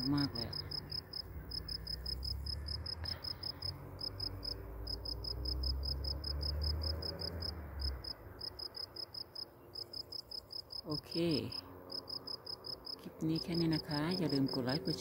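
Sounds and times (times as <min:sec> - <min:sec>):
cricket chirping: 0:00.0 - 0:10.9, 0:11.9 - 0:14.7.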